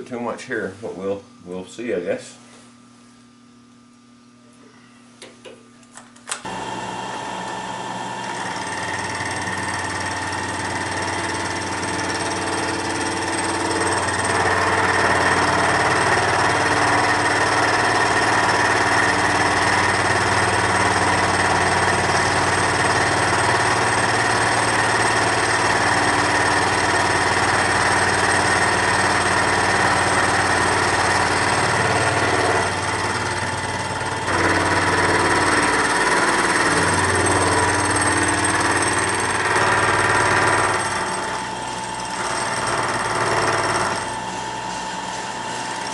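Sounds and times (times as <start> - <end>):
milling machine cutting metal: 6.5 - 45.9.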